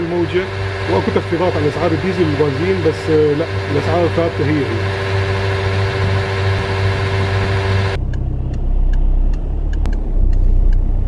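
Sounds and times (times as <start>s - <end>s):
mechanical hum with whining tone: 0.0s - 11.0s
car rumble in slow traffic: 3.1s - 11.0s.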